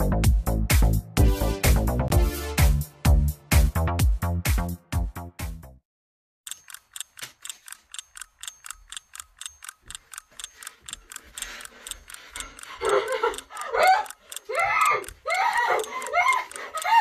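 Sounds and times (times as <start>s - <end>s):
clock-like ticking: 6.5s - 17.0s
woman crying out in panic: 13.6s - 17.0s.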